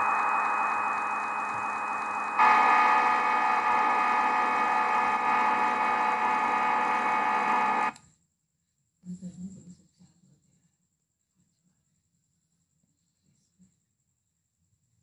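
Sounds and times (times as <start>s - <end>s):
simulated machining hum: 0.0s - 8.0s.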